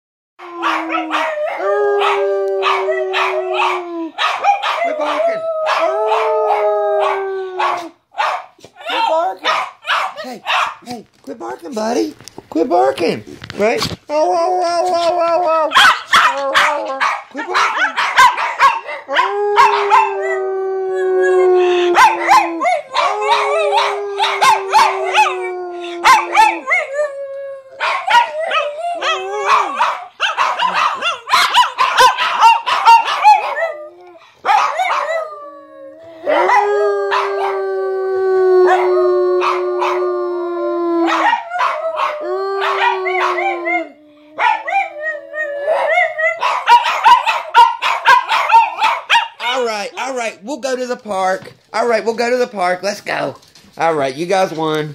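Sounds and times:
dogs howling: 0.4 - 8.0, 14.4 - 50.1
dogs barking and yipping: 0.5 - 10.9, 15.7 - 20.4, 21.9 - 26.9, 27.8 - 33.8, 34.4 - 35.2, 36.3 - 37.6, 38.7 - 40.0, 41.1 - 45.0, 45.6 - 50.1.

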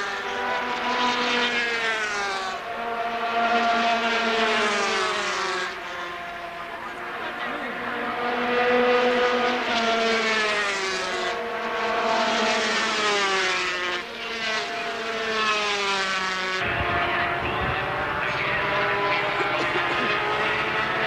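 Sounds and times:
racing motorcycles passing: 0.0 - 21.0
engine drone with low rumble: 16.6 - 21.0.

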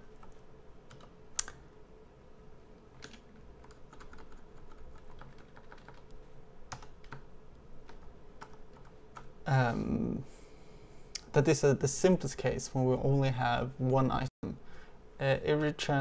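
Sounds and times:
keyboard keystrokes: 3.0 - 6.1.

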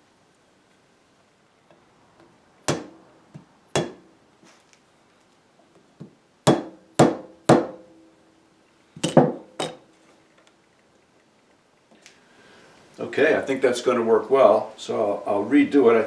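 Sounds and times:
mallet tapping wooden handle: 3.8 - 4.0, 6.0 - 7.8.

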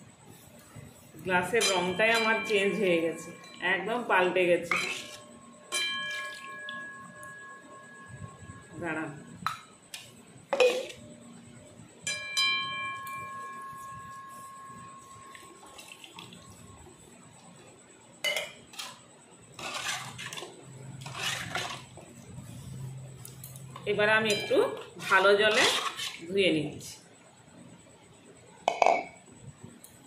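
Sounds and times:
metal vessel ringing: 1.4 - 9.8, 12.0 - 16.8, 23.5 - 25.6
metal vessels knocking together: 4.7 - 8.3, 10.5 - 11.0, 28.7 - 29.1.

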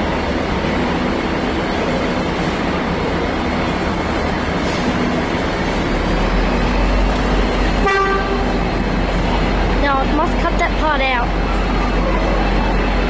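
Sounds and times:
diesel locomotive engine rumble: 0.0 - 13.0
locomotive horn tone: 7.7 - 8.8.

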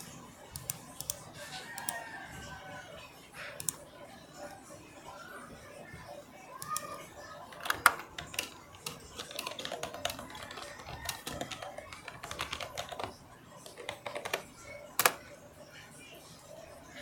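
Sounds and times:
fingers tapping a touchscreen: 0.0 - 2.0, 7.6 - 15.3.

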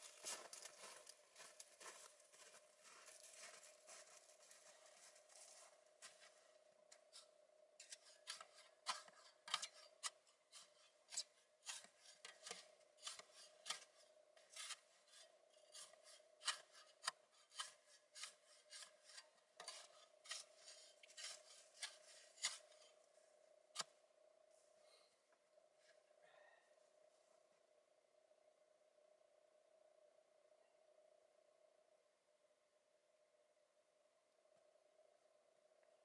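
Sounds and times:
shovel scraping packed snow and ice: 7.8 - 23.0.

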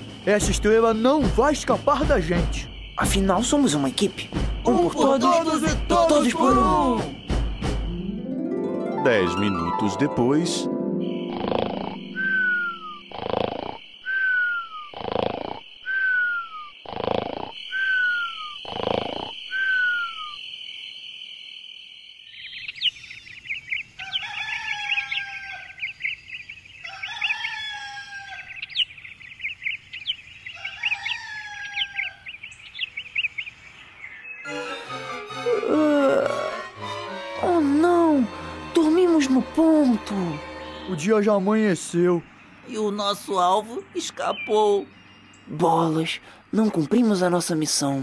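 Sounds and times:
insect chirr: 0.0 - 8.5, 9.4 - 34.5, 35.4 - 48.0
birds chirping: 0.0 - 48.0
cartoon snoring with whistle: 11.4 - 20.1
rooster crowing: 24.0 - 25.8, 26.8 - 28.6, 30.6 - 32.3.

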